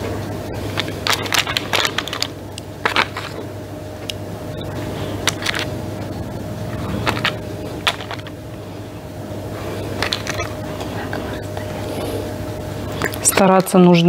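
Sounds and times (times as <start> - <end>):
steady low hum: 0.0 - 14.0
plastic tray crackling: 7.0 - 8.4.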